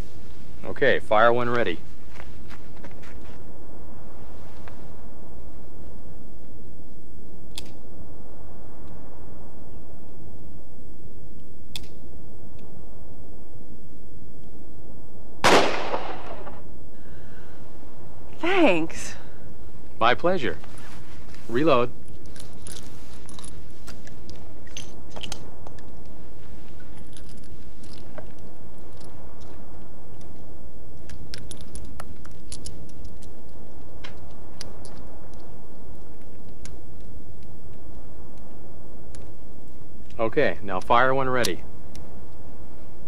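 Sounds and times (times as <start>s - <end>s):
low background noise: 0.0s - 43.0s
low background rumble: 0.0s - 43.0s
revolver shots: 15.4s - 16.6s
metallic clicks of revolver reloading: 31.0s - 33.4s.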